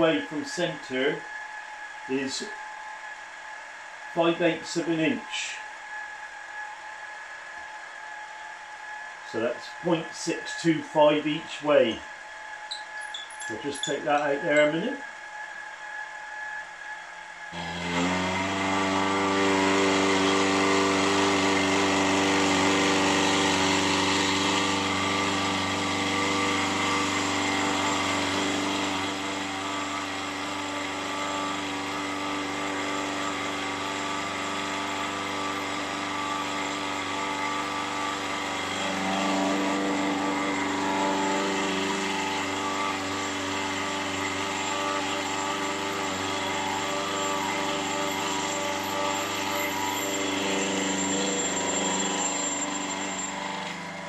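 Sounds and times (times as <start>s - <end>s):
end mill cutting brass: 12.7s - 15.0s, 17.6s - 54.0s
milling machine running: 17.6s - 54.0s.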